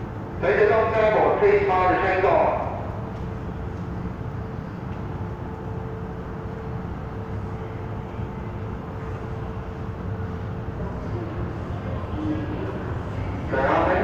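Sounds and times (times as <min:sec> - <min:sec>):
constant mid-pitched hum: 0:00.0 - 0:14.0
train equipment rumble: 0:00.0 - 0:14.0.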